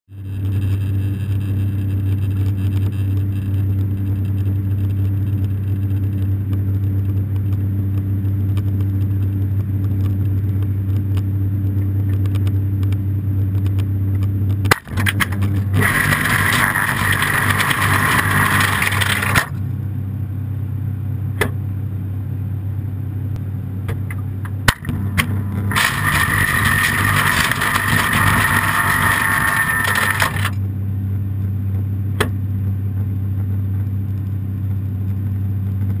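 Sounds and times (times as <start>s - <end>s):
freezer humming: 14.7s - 19.7s, 24.0s - 30.8s.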